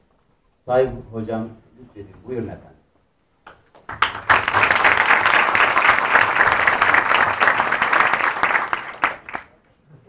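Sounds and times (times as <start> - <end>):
audience applause: 3.8 - 9.6.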